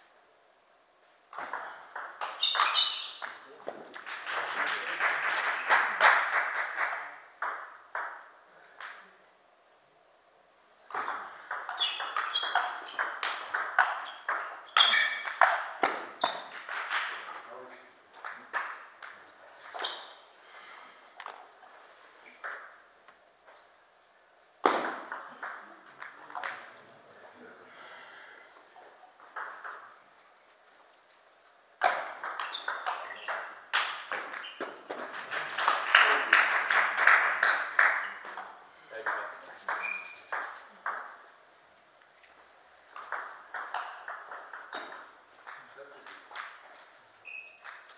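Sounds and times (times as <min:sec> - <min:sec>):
ping pong ball bouncing on table: 0:01.3 - 0:03.4, 0:07.4 - 0:09.0, 0:10.9 - 0:17.2, 0:24.6 - 0:26.6, 0:29.3 - 0:30.0, 0:31.8 - 0:34.7, 0:37.8 - 0:41.2, 0:43.0 - 0:46.6, 0:47.6 - 0:47.9
ping pong ball clicking rackets: 0:10.9 - 0:17.4, 0:22.4 - 0:22.8, 0:24.6 - 0:26.7, 0:29.3 - 0:30.0, 0:31.8 - 0:35.0, 0:37.8 - 0:41.2, 0:42.9 - 0:46.6, 0:47.5 - 0:47.9.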